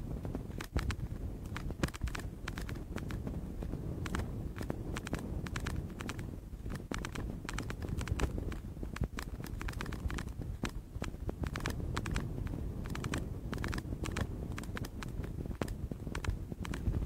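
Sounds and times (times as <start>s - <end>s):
wind buffeting microphone: 0.0s - 17.0s
sharp clicks and crackles: 0.2s - 17.0s.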